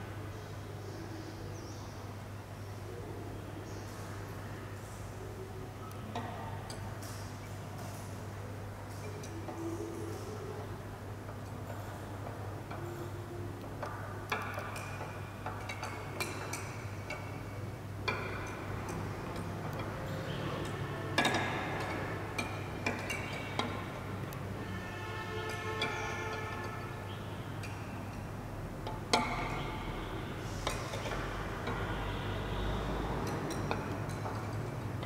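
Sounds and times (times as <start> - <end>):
ticks and clicks: 10.5 - 24.5.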